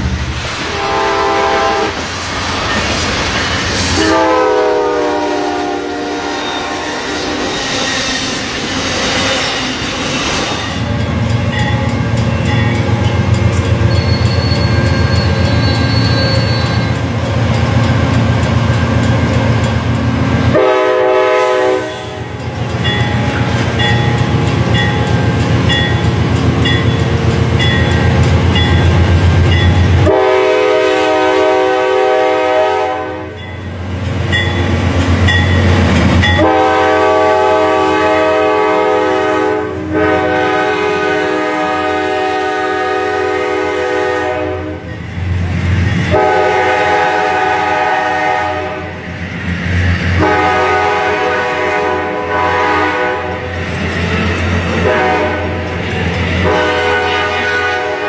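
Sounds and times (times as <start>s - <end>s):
diesel locomotive rumbling: 0.0s - 58.0s
train horn blasts: 0.6s - 2.0s, 4.0s - 7.6s, 20.4s - 22.4s, 29.8s - 33.4s, 36.2s - 45.0s, 46.1s - 49.0s, 50.2s - 53.5s, 54.8s - 55.7s, 56.4s - 58.0s.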